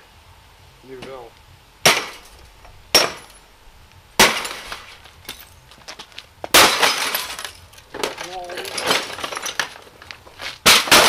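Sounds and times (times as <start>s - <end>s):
hammer smashing glass: 1.9s - 3.4s, 4.2s - 5.6s, 6.5s - 9.8s, 10.6s - 11.0s
glass shards clinking: 4.2s - 11.0s.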